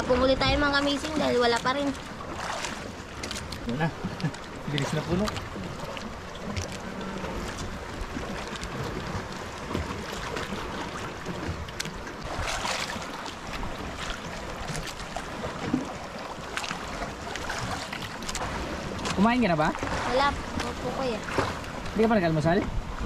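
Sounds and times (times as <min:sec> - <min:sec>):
wind buffeting microphone: 0:00.0 - 0:02.0
waves lapping against boat hull: 0:00.0 - 0:23.0.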